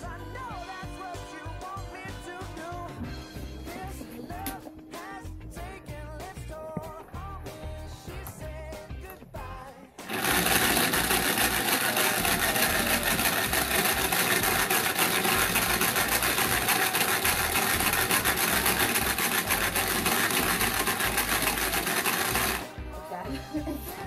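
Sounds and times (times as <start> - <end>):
toy mixer rattling buzz: 10.0 - 22.8.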